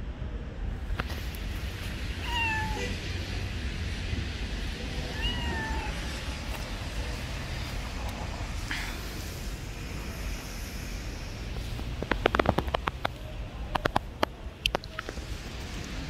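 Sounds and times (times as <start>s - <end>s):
cat meowing: 2.2s - 3.1s, 4.9s - 6.4s.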